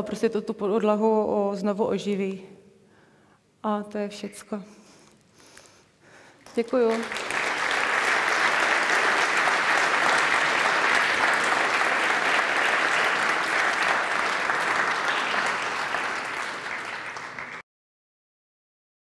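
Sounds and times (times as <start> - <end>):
audience applauding: 6.5 - 17.6.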